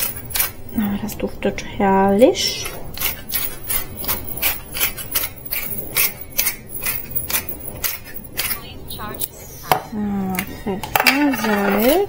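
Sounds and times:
pepper mill grinding: 0.0 - 1.3, 2.5 - 9.3.

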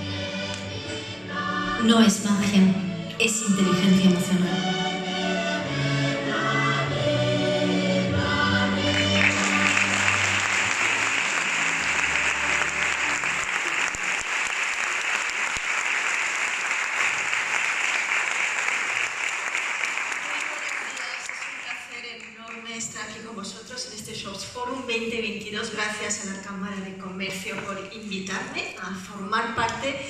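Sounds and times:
choral music with low held note: 0.0 - 13.6
audience applause: 8.8 - 22.1.

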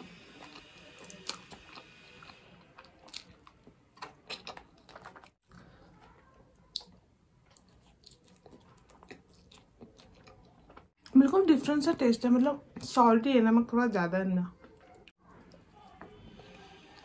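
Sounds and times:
person chewing food: 0.0 - 11.1.

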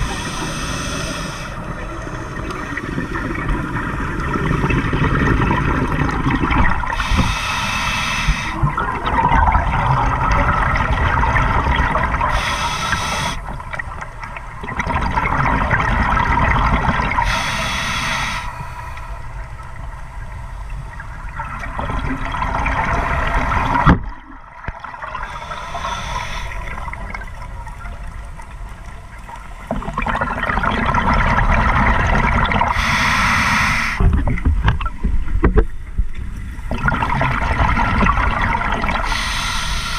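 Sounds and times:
regulator breathing rush: 0.0 - 2.4, 7.0 - 8.6, 12.3 - 13.4, 17.2 - 19.5, 25.3 - 26.8, 32.7 - 34.0, 39.0 - 39.9.

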